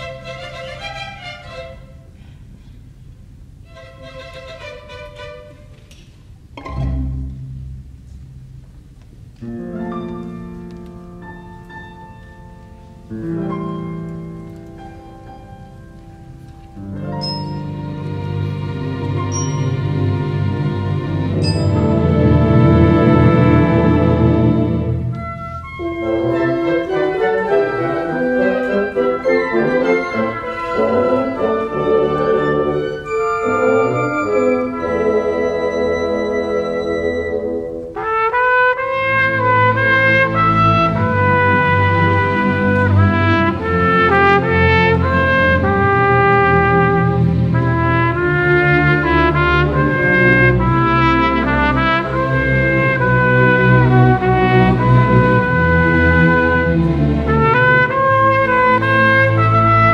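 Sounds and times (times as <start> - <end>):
low orchestral notes: 0.0 - 59.9
piano chords: 6.5 - 38.0.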